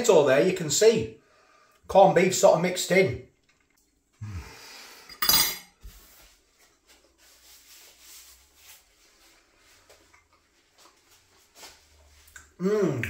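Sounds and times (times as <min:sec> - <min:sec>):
paper napkin rubbing and rustling: 0:05.9 - 0:09.9.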